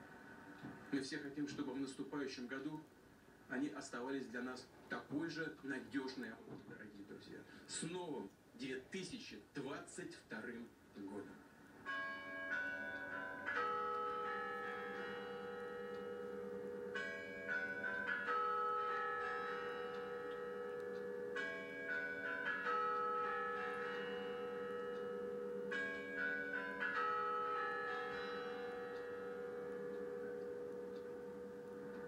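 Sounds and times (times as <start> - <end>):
clock bells chiming: 11.8 - 32.0.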